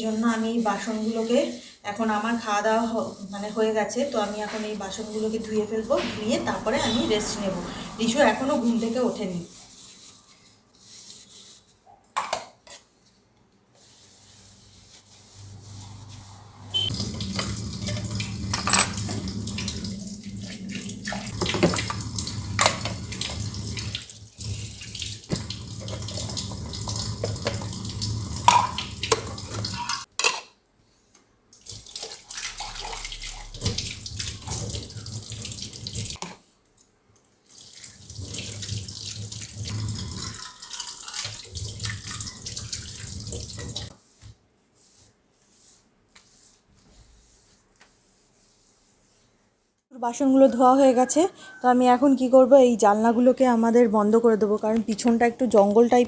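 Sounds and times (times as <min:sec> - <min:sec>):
tap water running into sink: 0:16.9 - 0:30.1, 0:31.6 - 0:36.2, 0:37.5 - 0:43.9
utensils knocking and clinking: 0:17.3 - 0:19.4.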